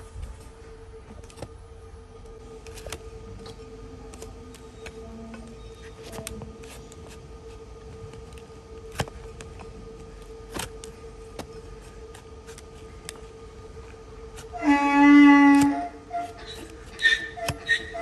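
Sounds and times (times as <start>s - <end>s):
faint steady hum: 0.0s - 18.0s
knife scraping hoof: 15.5s - 18.0s.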